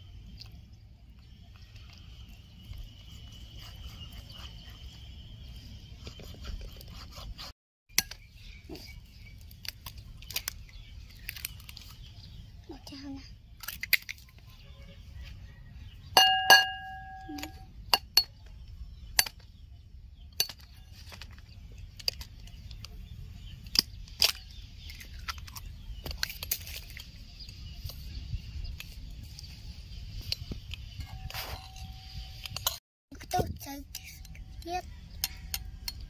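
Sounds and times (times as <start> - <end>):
egg knocking on ceramic bowl: 16.2 - 17.2
bowl ringing: 16.2 - 17.7.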